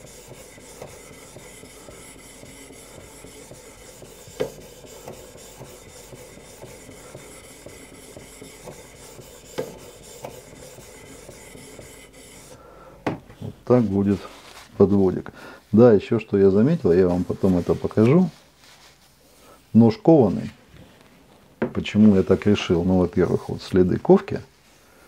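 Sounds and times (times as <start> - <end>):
knife rasping on abrasive: 0.0 - 12.6.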